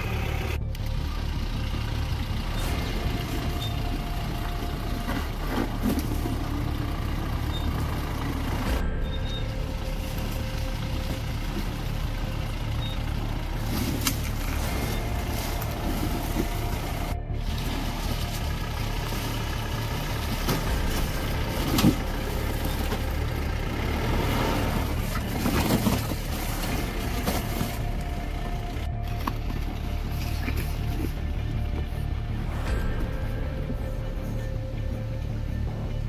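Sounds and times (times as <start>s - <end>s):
car engine running low: 0.0s - 36.0s.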